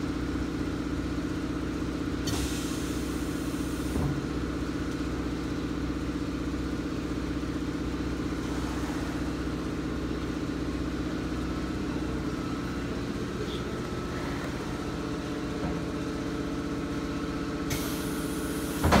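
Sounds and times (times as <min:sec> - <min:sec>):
machine motor hum: 0:08.2 - 0:19.0.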